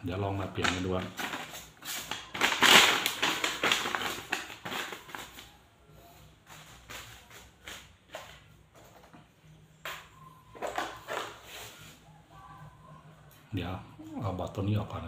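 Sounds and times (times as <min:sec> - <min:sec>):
paper crinkling and rustling: 0:00.5 - 0:05.6, 0:06.4 - 0:09.1.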